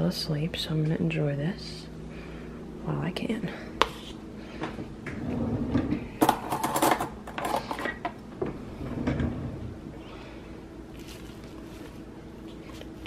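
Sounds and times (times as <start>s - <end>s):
cutlery drawer opening: 5.2s - 8.0s.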